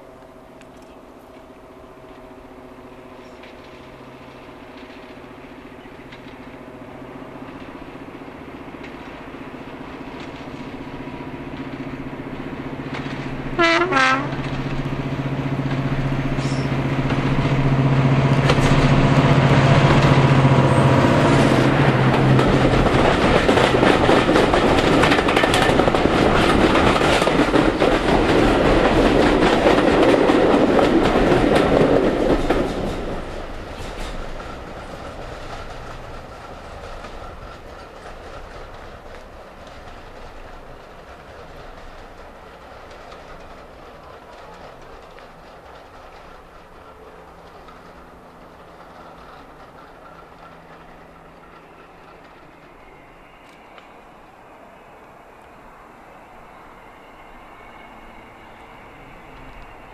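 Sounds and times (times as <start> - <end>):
diesel locomotive engines running: 0.0 - 59.9
locomotive horn blasts: 13.6 - 14.5.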